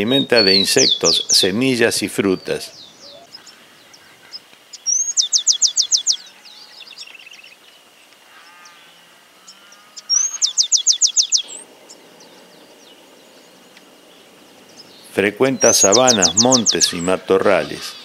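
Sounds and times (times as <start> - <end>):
bird singing whistle and trill: 0.4 - 1.4, 4.9 - 7.6, 10.0 - 11.6, 15.6 - 16.9
soft low bird trilling: 2.5 - 7.6, 8.2 - 17.0.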